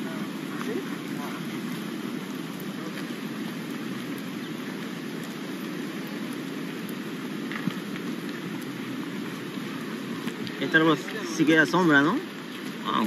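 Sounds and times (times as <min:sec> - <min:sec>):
fast-flowing river: 0:00.0 - 0:13.0
stones clicking underfoot: 0:06.3 - 0:08.8, 0:10.2 - 0:10.6.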